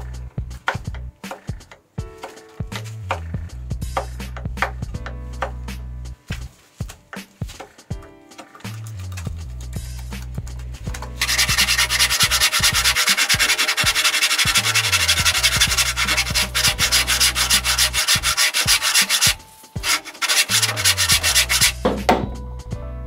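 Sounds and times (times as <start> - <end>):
hand saw cutting wood: 11.2 - 21.8.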